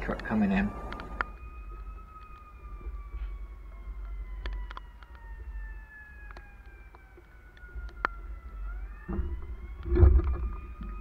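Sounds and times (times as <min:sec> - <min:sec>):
steady low rumble: 0:00.0 - 0:04.4
faint fire truck siren wailing: 0:00.0 - 0:11.0.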